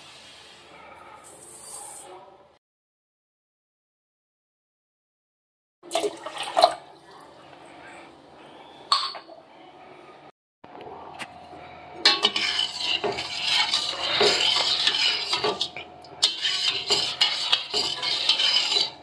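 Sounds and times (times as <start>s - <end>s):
spoon clinking against pot: 12.0s - 19.0s
sugar grains scraping in pot: 12.0s - 19.0s.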